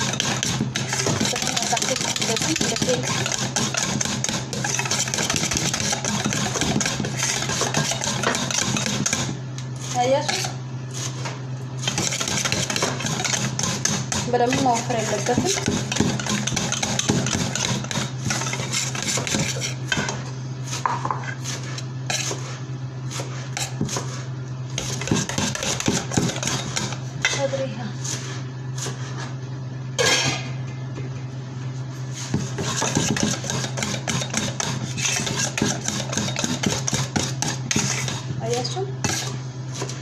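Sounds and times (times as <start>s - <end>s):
whisk clinking in a metal bowl: 0.0s - 9.2s, 11.9s - 20.1s, 32.7s - 38.1s
steady low hum: 0.0s - 40.0s.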